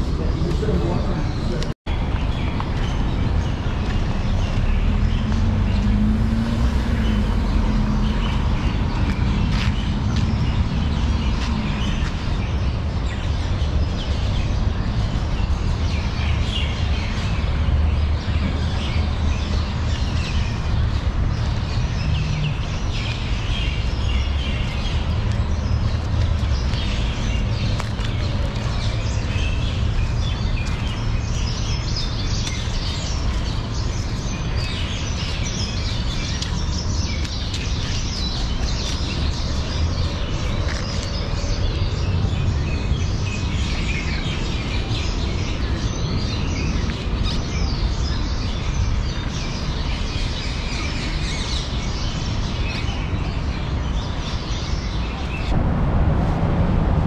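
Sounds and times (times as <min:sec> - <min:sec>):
small birds chirping: 0:00.0 - 0:55.6
low rumble: 0:55.4 - 0:57.0.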